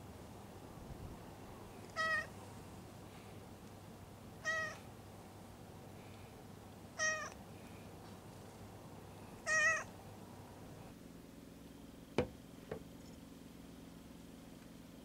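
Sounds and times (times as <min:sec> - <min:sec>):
cat meowing quietly: 0:01.9 - 0:02.3, 0:04.4 - 0:04.8, 0:07.0 - 0:07.4, 0:09.4 - 0:09.9
mug set down on table: 0:12.2 - 0:12.8.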